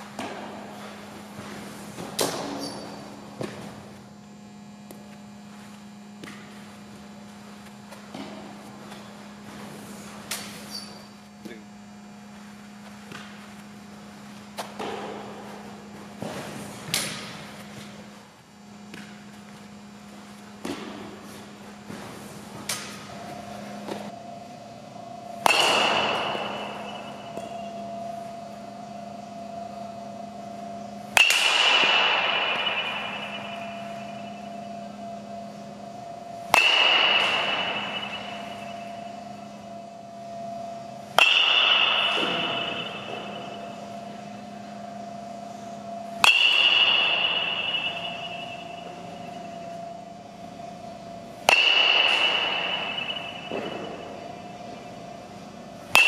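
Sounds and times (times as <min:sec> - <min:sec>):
steady hum: 0:00.0 - 0:56.0
bat cracking on ball: 0:20.6 - 0:22.0, 0:25.4 - 0:27.6, 0:31.1 - 0:34.5, 0:36.4 - 0:39.4, 0:41.1 - 0:44.1, 0:46.1 - 0:49.6, 0:51.4 - 0:54.9.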